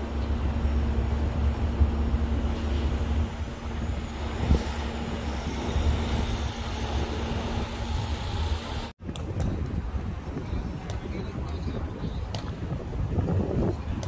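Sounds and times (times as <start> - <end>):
heavy vehicle engine humming: 0.0 - 9.0
street traffic rumble: 0.0 - 14.0.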